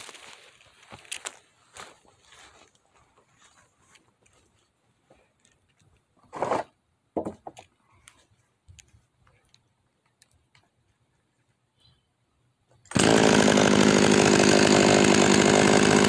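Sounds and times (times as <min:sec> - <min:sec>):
footsteps on dry leaves: 0:00.0 - 0:04.0.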